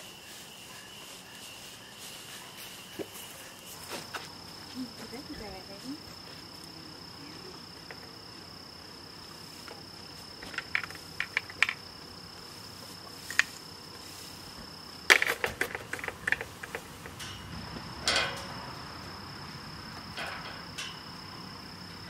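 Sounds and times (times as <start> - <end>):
insect high trill: 0.0 - 22.0
sharp metal clanks and rattles: 15.1 - 18.9, 20.0 - 21.2.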